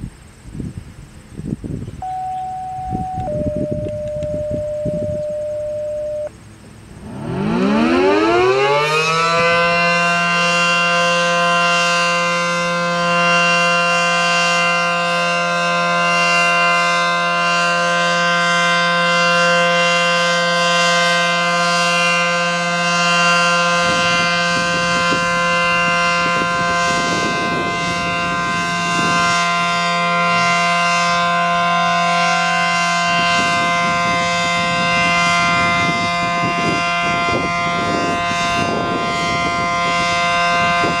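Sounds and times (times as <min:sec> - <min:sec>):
rotating two-tone warning siren: 0:02.0 - 0:41.0.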